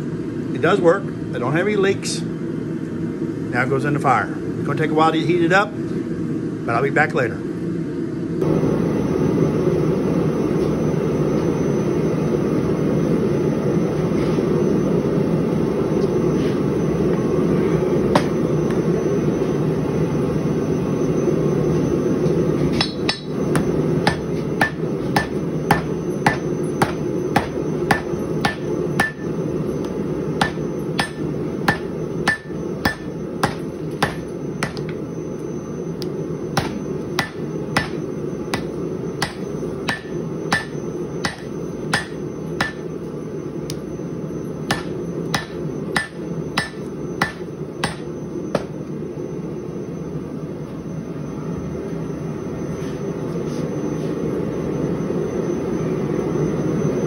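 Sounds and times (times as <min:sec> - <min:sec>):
hammer striking hot steel: 0:18.1 - 0:18.4, 0:22.7 - 0:35.0, 0:36.0 - 0:42.9, 0:44.7 - 0:48.8.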